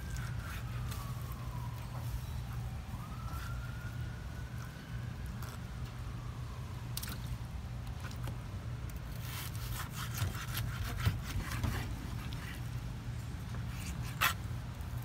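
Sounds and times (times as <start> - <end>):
knife cutting meat on wooden board: 9.2 - 12.6.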